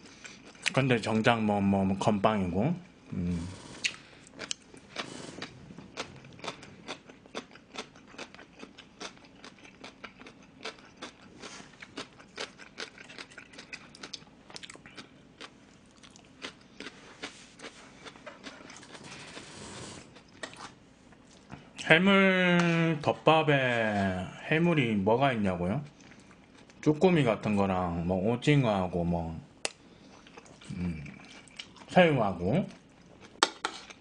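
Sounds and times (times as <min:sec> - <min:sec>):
person chewing crunchy food: 0:00.0 - 0:00.8, 0:03.3 - 0:21.5, 0:30.0 - 0:31.9, 0:32.6 - 0:34.0.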